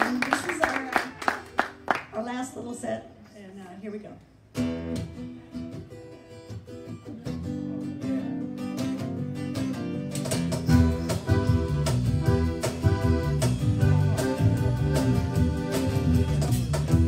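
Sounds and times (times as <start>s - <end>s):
strummed acoustic guitar chords: 4.6s - 17.0s
electric bass: 9.0s - 17.0s
live band with percussion: 10.1s - 17.0s.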